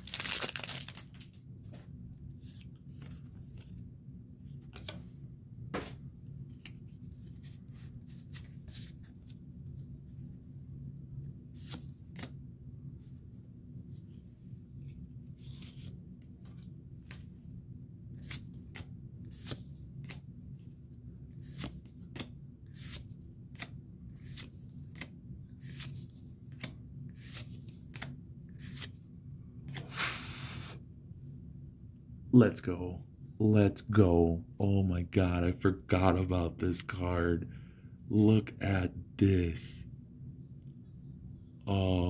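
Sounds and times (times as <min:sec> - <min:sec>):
cards swishing: 0:11.6 - 0:12.4, 0:18.2 - 0:20.2, 0:21.4 - 0:29.0.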